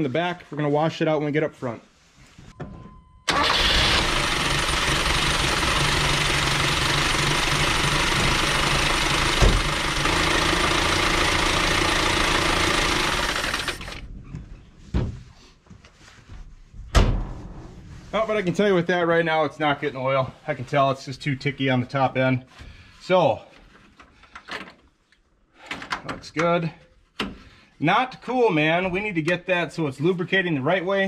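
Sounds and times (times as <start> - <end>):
engine starting and running: 3.2 - 14.2
engine knock: 3.4 - 14.0.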